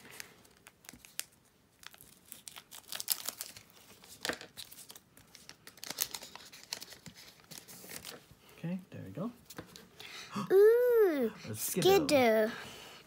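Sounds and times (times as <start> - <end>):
foil wrapper crinkling: 0.0 - 8.2
trading cards rustling: 0.0 - 8.2.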